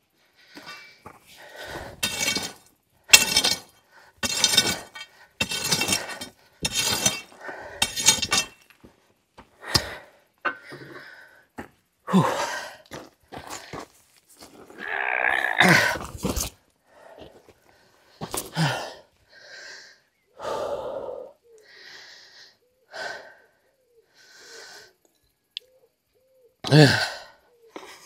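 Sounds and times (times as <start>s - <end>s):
metal knocks and clinks: 2.0s - 8.7s.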